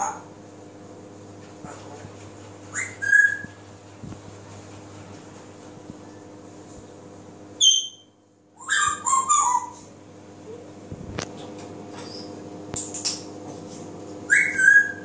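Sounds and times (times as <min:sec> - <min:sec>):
parrot whistling and chattering: 0:02.7 - 0:03.6, 0:07.6 - 0:09.9, 0:14.3 - 0:15.0.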